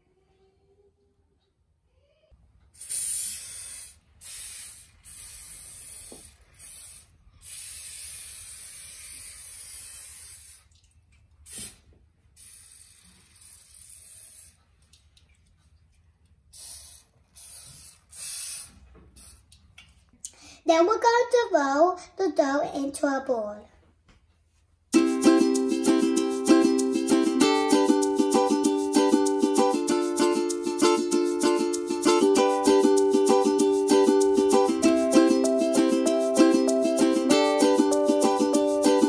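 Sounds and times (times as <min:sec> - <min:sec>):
aerosol spray hissing: 0:02.8 - 0:10.7, 0:11.5 - 0:11.8, 0:12.4 - 0:14.6, 0:16.5 - 0:19.4.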